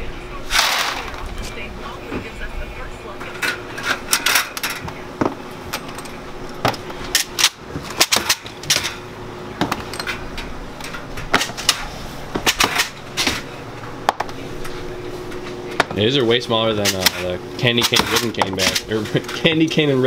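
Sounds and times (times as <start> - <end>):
steady low hum: 0.0 - 20.0
metal parts clacking: 3.3 - 4.9, 5.7 - 13.5, 16.8 - 19.8.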